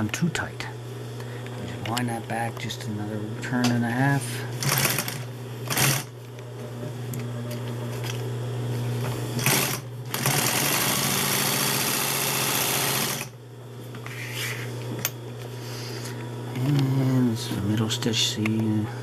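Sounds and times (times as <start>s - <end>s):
sewing machine stitching: 4.6s - 6.1s, 9.4s - 13.3s.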